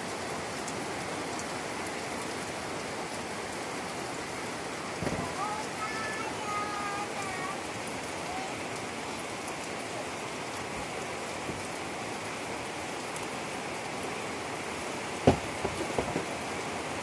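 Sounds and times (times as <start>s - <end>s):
heavy rain on foliage: 0.0s - 17.0s
sharp knocks: 15.2s - 16.3s.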